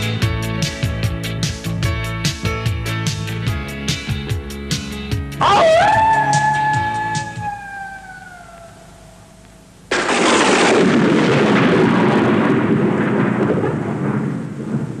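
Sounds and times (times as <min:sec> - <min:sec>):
falling howl-like tone: 0:05.4 - 0:09.4
loud thunder-like crash: 0:09.9 - 0:15.0.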